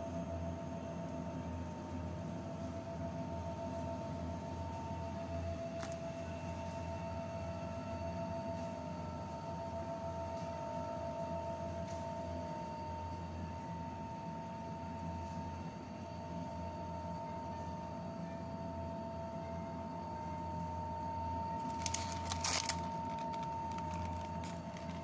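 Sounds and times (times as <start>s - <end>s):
refrigeration hum: 17.2s - 25.0s.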